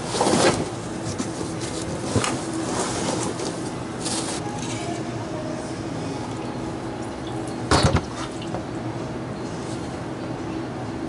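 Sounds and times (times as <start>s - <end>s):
cardboard scraping and rustling: 0.0s - 4.8s.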